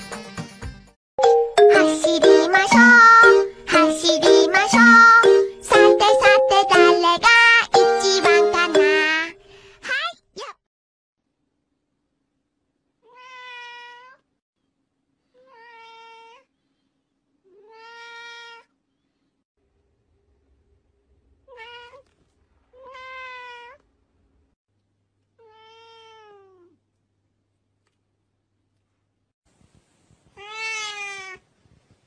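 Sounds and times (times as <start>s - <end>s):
cats meowing: 13.0s - 14.2s, 17.5s - 18.7s, 22.7s - 23.8s, 25.4s - 26.8s, 30.3s - 31.4s.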